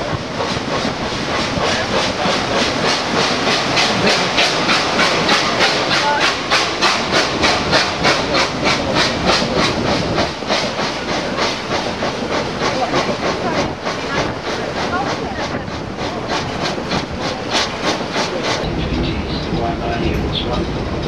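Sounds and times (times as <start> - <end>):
steady steam hiss: 0.0 - 21.0
steam engine chuffing: 0.0 - 21.0.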